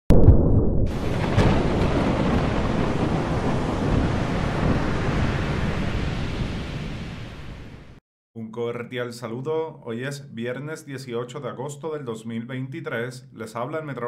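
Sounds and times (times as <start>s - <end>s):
wind: 0.9s - 7.6s
waves: 0.9s - 7.9s.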